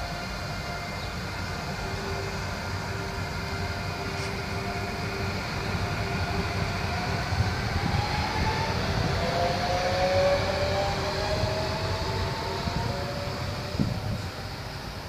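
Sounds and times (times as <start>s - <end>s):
electric traction whine: 0.0s - 15.0s
train running gear rumble: 0.0s - 15.0s.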